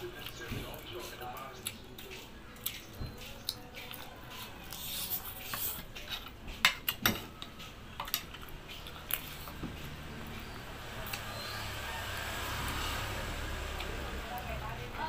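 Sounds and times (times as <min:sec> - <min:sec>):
man chewing: 0:00.1 - 0:06.6, 0:07.4 - 0:11.3.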